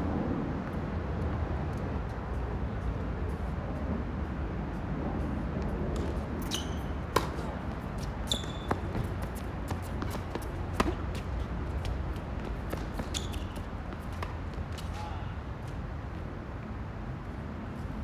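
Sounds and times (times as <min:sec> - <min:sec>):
tennis ball hitting rackets: 0:06.0 - 0:15.0
shoes squeaking on court: 0:06.0 - 0:15.8.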